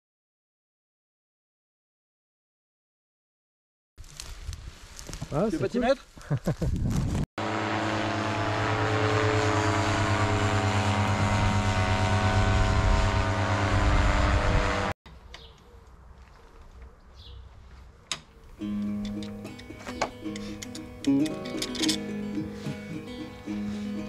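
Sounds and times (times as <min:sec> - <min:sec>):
paramotor engine droning: 0:07.4 - 0:15.0.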